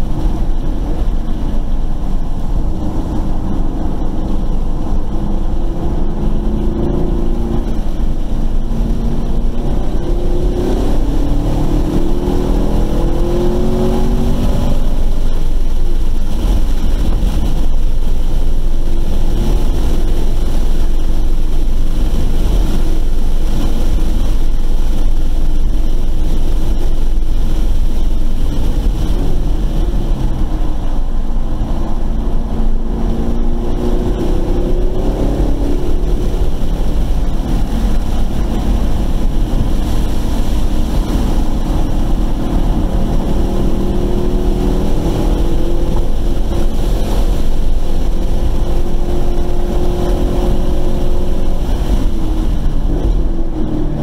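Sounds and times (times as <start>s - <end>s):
car engine revving hard: 0.0s - 24.6s, 25.2s - 54.0s
wind and road noise: 0.0s - 54.0s.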